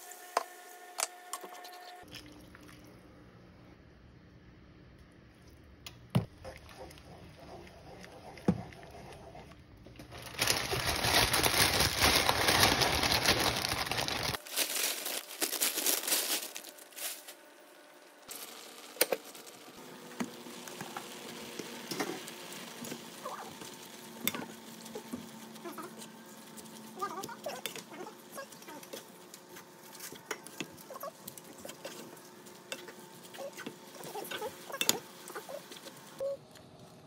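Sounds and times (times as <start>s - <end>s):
dry noodles rustling: 10.0s - 17.4s.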